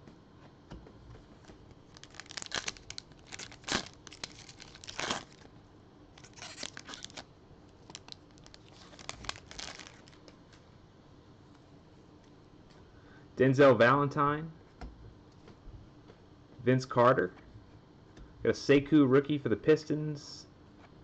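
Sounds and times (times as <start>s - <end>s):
foil wrapper tearing and crinkling: 1.9s - 5.5s, 6.2s - 10.3s.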